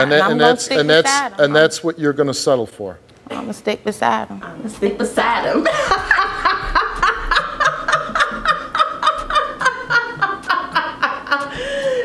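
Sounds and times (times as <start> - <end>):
women laughing: 5.5 - 12.0.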